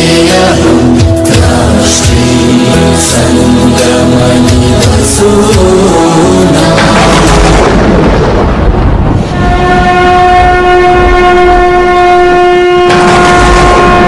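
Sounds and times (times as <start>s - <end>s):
rushing noise: 0.0s - 14.0s
conch shell blown: 9.3s - 14.0s.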